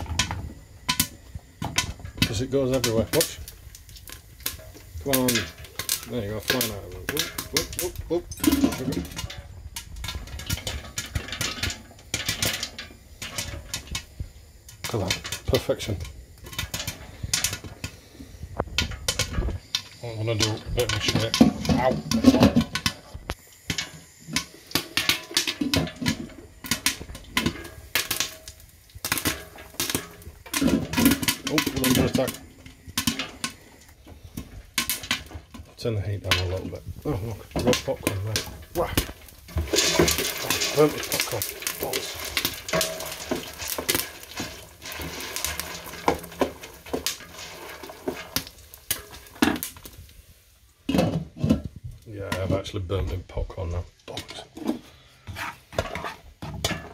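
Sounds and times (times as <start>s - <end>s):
popcorn popping in a pot: 0.0s - 54.6s, 55.7s - 56.9s
faint sizzle: 0.0s - 56.9s
wooden spoon scraping metal pot: 18.8s - 23.1s, 29.2s - 49.9s, 54.1s - 56.9s.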